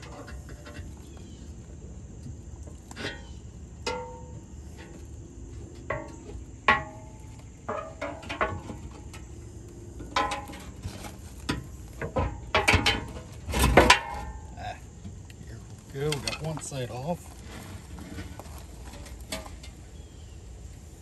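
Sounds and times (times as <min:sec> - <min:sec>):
metal clanks and clinks: 0:02.7 - 0:15.2, 0:16.0 - 0:16.7.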